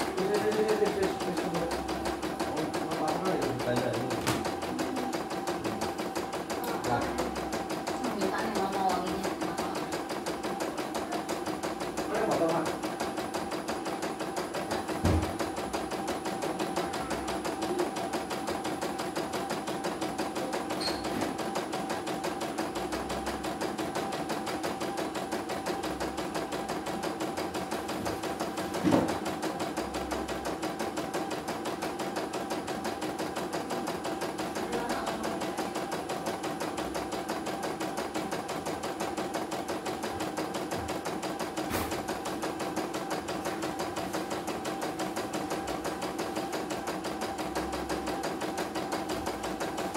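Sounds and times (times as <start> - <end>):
motor hum: 0.0 - 49.9
loud knock: 15.0 - 15.4.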